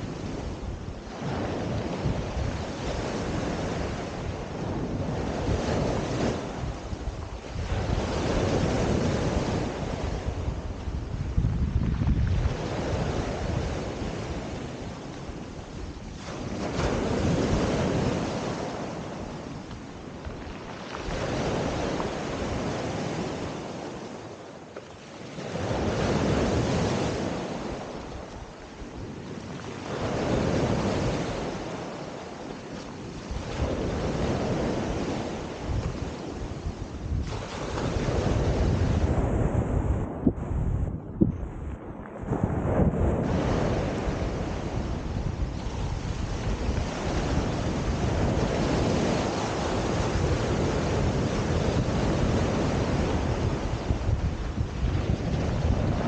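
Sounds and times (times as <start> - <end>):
surf breaking on pebble beach: 16.0 - 24.1, 29.7 - 40.2, 41.6 - 56.0.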